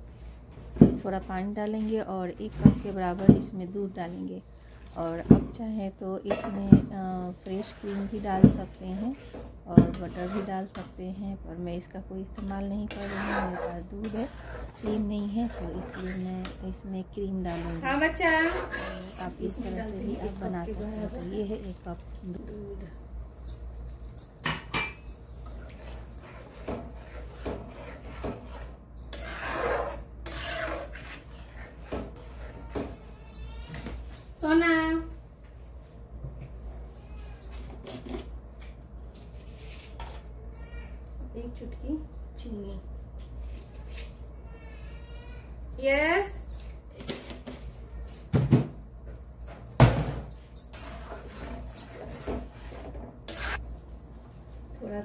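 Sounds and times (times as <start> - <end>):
stirring sounds: 0.0 - 24.1, 24.9 - 34.5, 50.4 - 54.7
ladle scraping gravy in a pan: 7.4 - 10.6, 12.9 - 16.3, 17.5 - 21.3, 25.4 - 32.9, 50.8 - 53.7.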